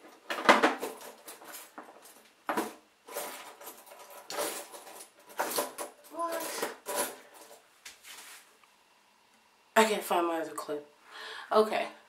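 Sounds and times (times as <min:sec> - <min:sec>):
small hard objects clattering: 0:00.3 - 0:07.6.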